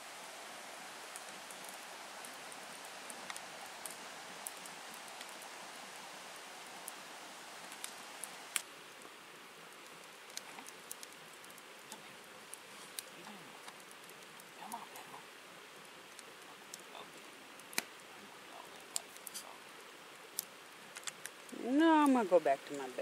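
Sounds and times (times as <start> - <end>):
low rushing outdoor noise: 0.0 - 23.0
light ticks and snaps: 3.1 - 5.4, 7.7 - 9.2, 9.8 - 15.1, 16.1 - 17.0, 17.6 - 18.0, 18.6 - 19.5, 20.3 - 21.5.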